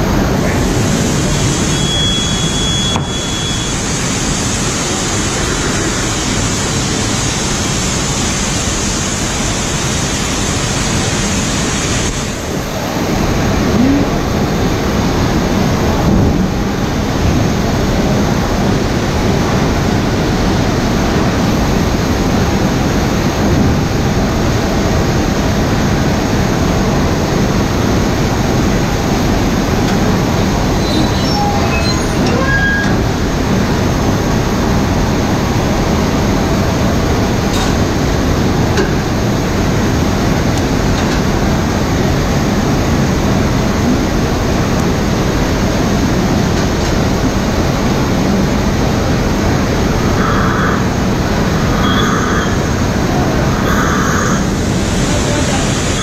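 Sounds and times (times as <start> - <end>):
steam hissing: 0.0 - 16.1, 49.7 - 56.0.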